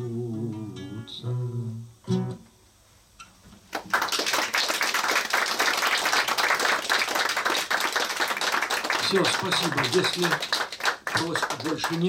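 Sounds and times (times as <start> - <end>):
audience applause: 3.7 - 12.0.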